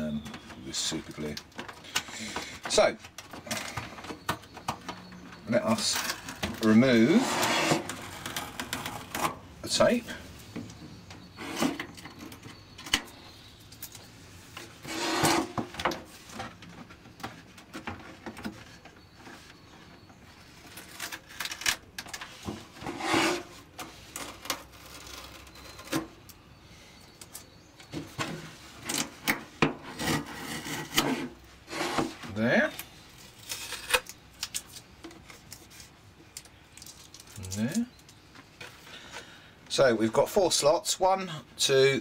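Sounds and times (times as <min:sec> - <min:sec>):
tape being peeled: 0:20.4 - 0:22.4, 0:23.4 - 0:26.1, 0:32.8 - 0:38.8.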